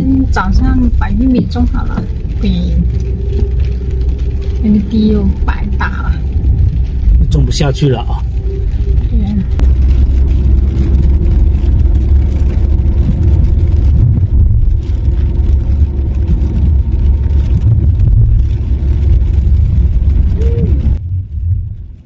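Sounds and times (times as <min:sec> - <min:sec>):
car engine and tyres rumbling: 0:00.0 - 0:22.0.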